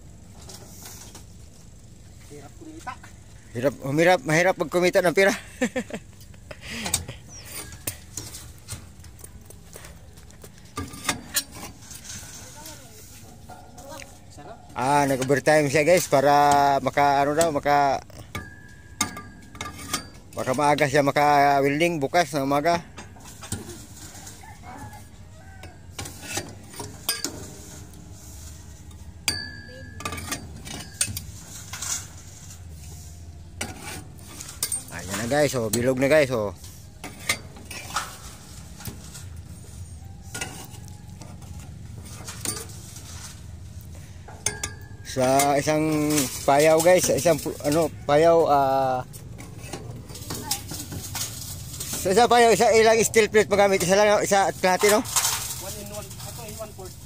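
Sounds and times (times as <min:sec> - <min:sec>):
metallic clinks and clanks: 0:10.6 - 0:24.6, 0:25.4 - 0:32.3, 0:33.5 - 0:48.3
metal clanks from rolling machine: 0:13.2 - 0:21.2, 0:25.6 - 0:28.0, 0:29.2 - 0:32.5, 0:44.2 - 0:48.0.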